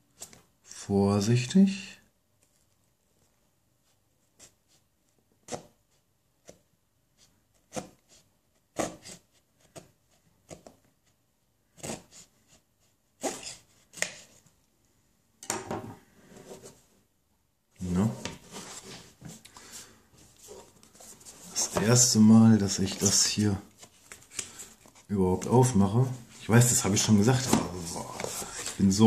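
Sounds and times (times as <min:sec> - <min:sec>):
knife cutting paper seal: 0:08.7 - 0:10.7
cardboard box rubbing: 0:18.3 - 0:19.4.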